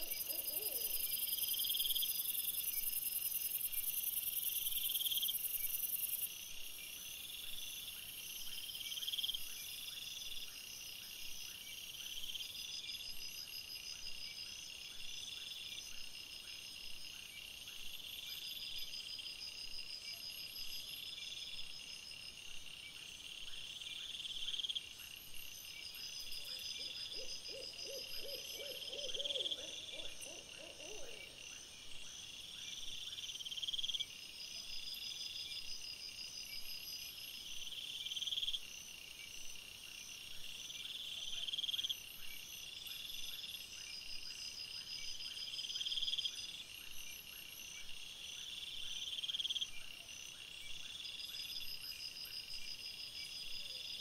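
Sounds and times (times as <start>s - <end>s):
low quavering hoot: 0.0s - 1.2s, 26.5s - 31.4s.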